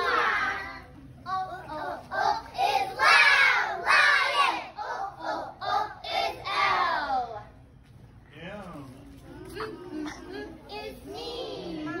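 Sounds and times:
children singing loudly: 0.0s - 7.4s.

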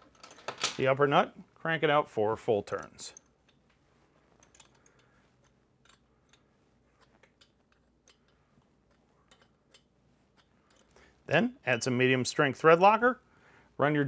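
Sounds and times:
wrench clicking: 4.4s - 11.0s.

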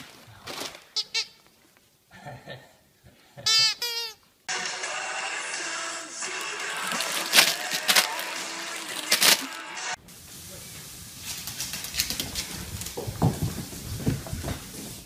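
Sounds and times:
plastic bags crinkling: 0.0s - 1.0s, 6.3s - 9.9s
room hiss: 4.4s - 15.0s.

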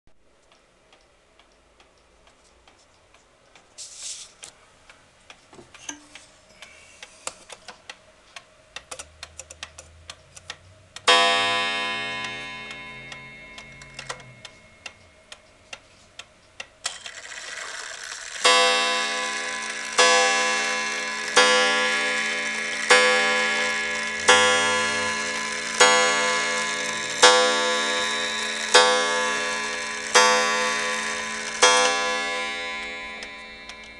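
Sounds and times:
shelf clock ticking: 0.3s - 3.8s, 4.4s - 33.9s
clock striking wire gong: 11.0s - 15.3s, 18.3s - 33.9s.

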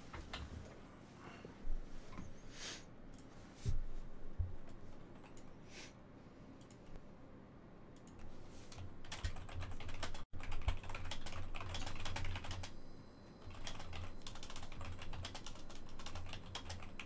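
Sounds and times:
keyboard typing: 8.0s - 12.8s, 13.4s - 17.0s.

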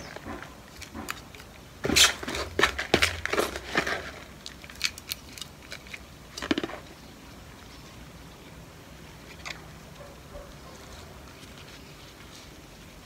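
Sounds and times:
soil crunching and rustling: 0.0s - 7.0s.

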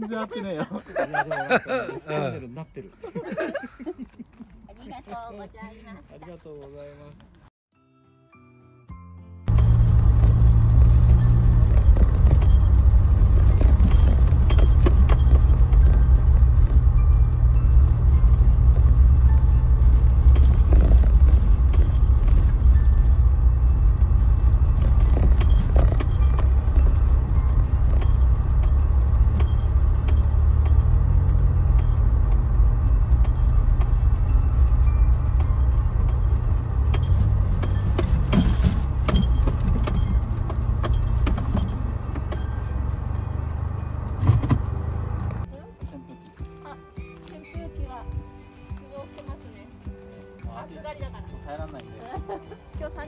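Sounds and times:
car engine and tyre drone: 9.5s - 45.5s.

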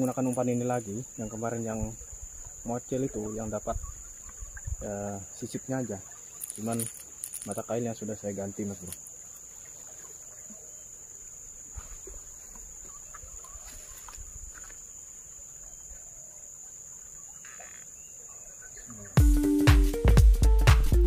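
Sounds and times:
insects buzzing: 0.0s - 21.0s
faint rustles and knocks: 6.1s - 7.8s
loud electronic music: 19.2s - 21.0s.

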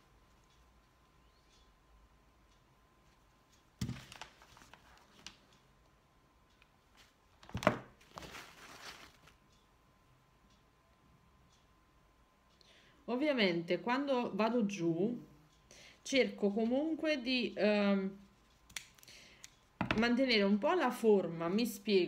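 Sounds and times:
rustling of tools and paper towel: 8.0s - 9.4s.

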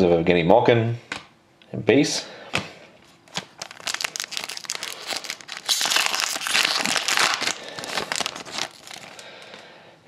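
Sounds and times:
foil wrapper crinkling and tearing: 3.3s - 9.6s.

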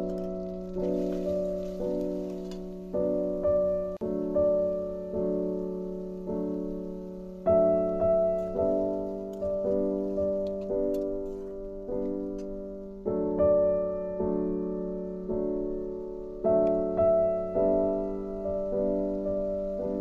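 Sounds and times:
slow piano chords: 0.0s - 20.0s.

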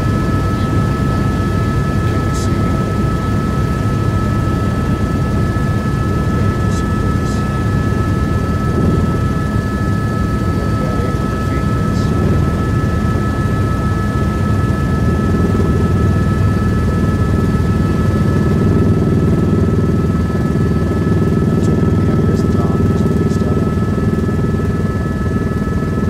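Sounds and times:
high whining tones: 0.0s - 19.8s
helicopter engine and rotor drone: 0.0s - 26.0s.

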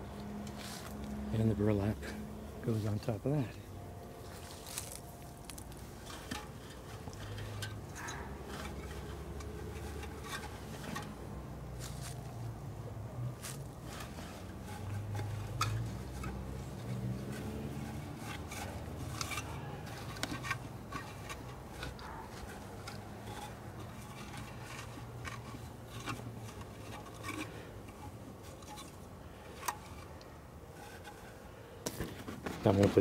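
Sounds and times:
sacking rustling against wooden box: 4.2s - 7.0s.

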